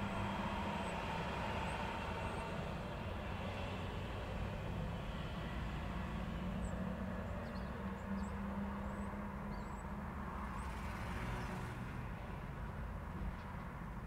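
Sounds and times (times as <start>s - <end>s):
engine hum: 0.0s - 14.0s
road traffic rumble: 0.0s - 14.0s
vehicle passing: 10.1s - 12.6s.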